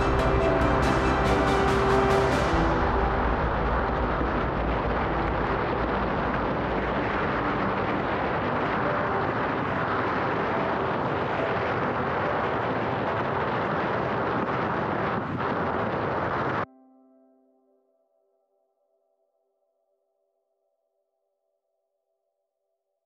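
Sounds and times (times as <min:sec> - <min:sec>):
wind on microphone: 0:00.0 - 0:16.7.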